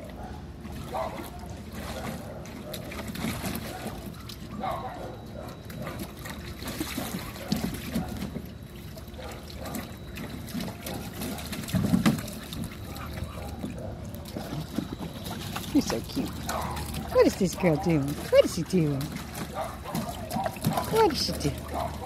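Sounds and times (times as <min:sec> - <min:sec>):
water splashing in pool: 0:00.0 - 0:22.0.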